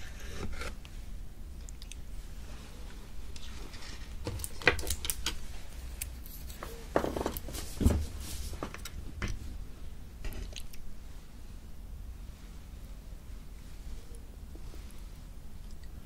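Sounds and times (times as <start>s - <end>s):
squishy wet jelly sounds: 10.3s - 10.9s.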